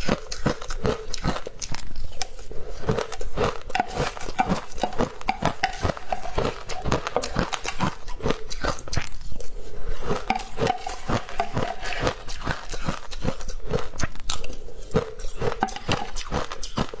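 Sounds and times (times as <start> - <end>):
chewing ice: 0.0 - 17.0
metal spoon scraping glass bowl: 3.7 - 8.0, 10.1 - 13.0, 15.4 - 16.8.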